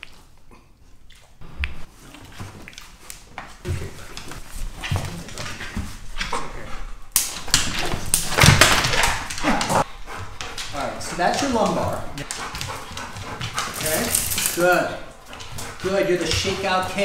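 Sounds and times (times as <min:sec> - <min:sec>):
rustling: 0:01.4 - 0:17.0
dog breathing: 0:09.8 - 0:17.0.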